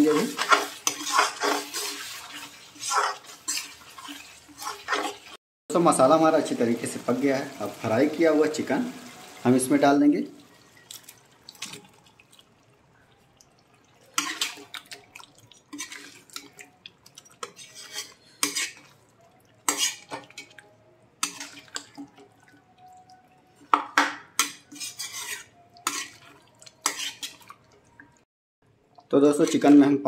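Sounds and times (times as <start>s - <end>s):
metal ladle scraping metal pan: 0.0s - 5.4s, 14.1s - 14.9s, 15.7s - 16.6s, 17.3s - 19.0s, 19.6s - 20.6s, 21.2s - 22.2s, 23.6s - 27.6s, 29.3s - 29.8s.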